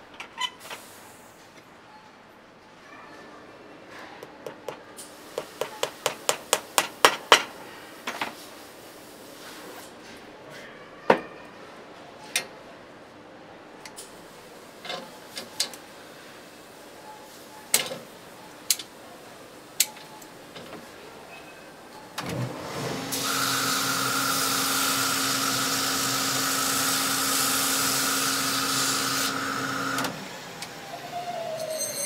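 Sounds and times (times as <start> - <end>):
hammer tapping a shoe: 4.2 - 7.4.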